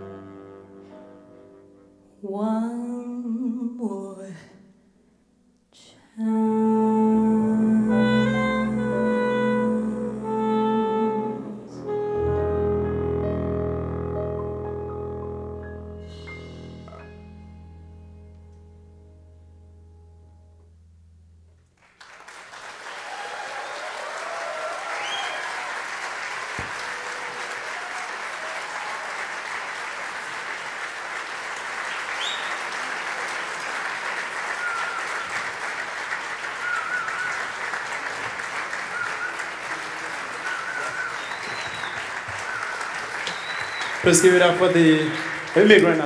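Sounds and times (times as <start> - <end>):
jazz ensemble held chord: 0.0 - 2.0, 6.3 - 22.6
audience applause: 21.8 - 46.0
scattered cheers: 22.8 - 29.4.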